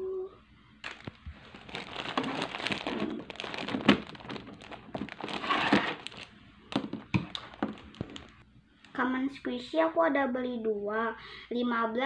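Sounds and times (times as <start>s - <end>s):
plastic wrappers crinkling: 0.8s - 9.0s.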